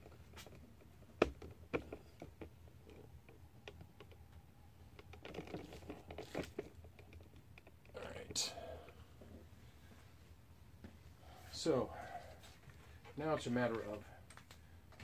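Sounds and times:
soft rustling: 5.3 - 14.7.

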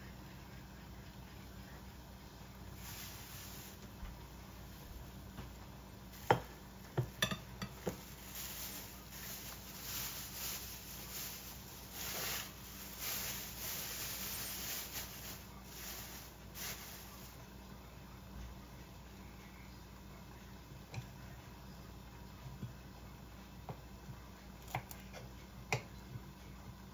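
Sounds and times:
stir-fry sizzling in a frying pan: 1.9 - 17.6.

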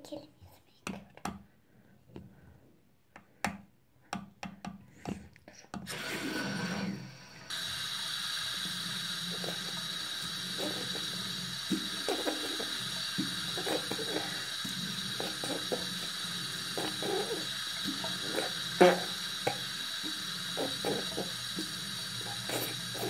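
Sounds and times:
water running into sink: 5.9 - 23.0.

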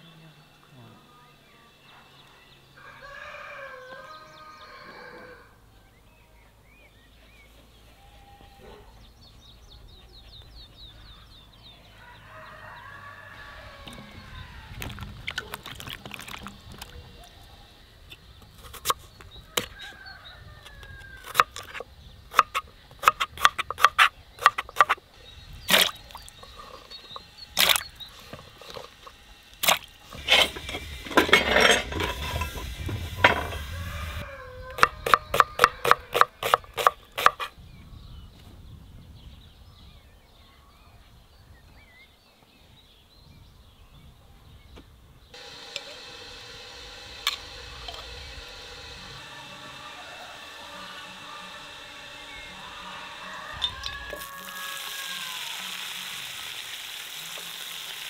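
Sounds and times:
crinkle cutter slicing potatoes: 21.2 - 25.0, 25.6 - 34.2, 34.8 - 37.5, 45.4 - 54.2
knife chopping onion on board: 21.2 - 25.0, 34.8 - 37.5.

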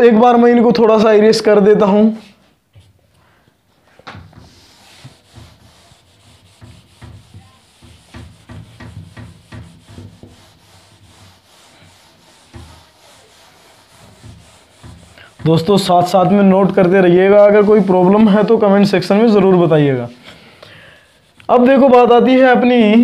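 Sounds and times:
eraser rubbing on whiteboard: 4.2 - 19.3.

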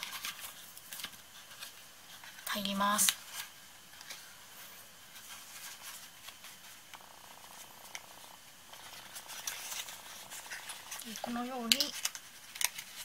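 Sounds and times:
cardstock rustling and clicking: 8.8 - 13.0.

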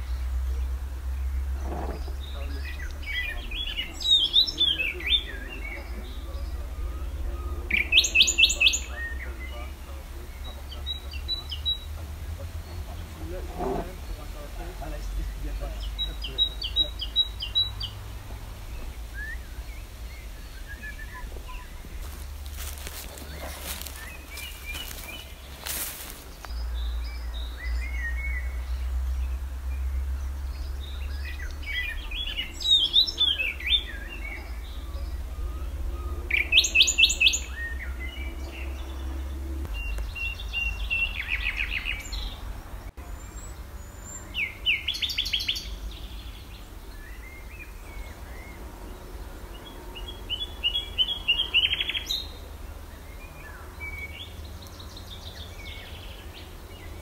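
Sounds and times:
steady low rumble: 0.0 - 44.3
songbirds singing: 0.0 - 57.0.

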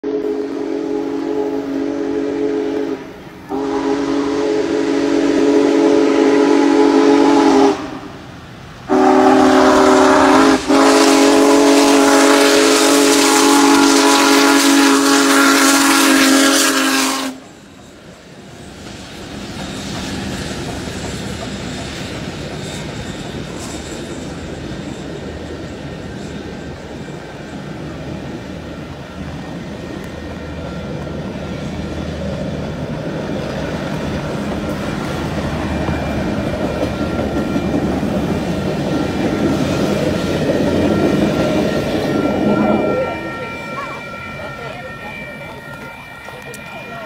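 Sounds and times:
steam locomotive chime whistle: 0.0 - 8.2, 8.9 - 19.0, 33.8 - 47.0
train rolling past rumble: 0.0 - 47.0.

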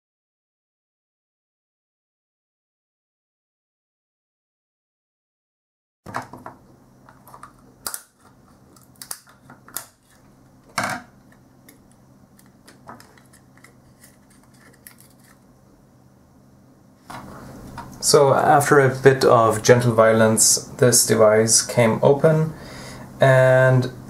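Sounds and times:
plastic case cracking and clicking: 7.1 - 10.0.

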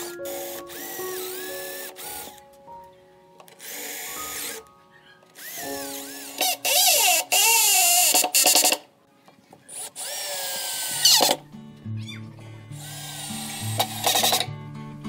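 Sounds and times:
power drill boring into wood: 0.0 - 2.4, 3.5 - 4.6, 5.4 - 8.8, 9.7 - 11.4, 12.8 - 14.5
background music: 0.0 - 15.0.

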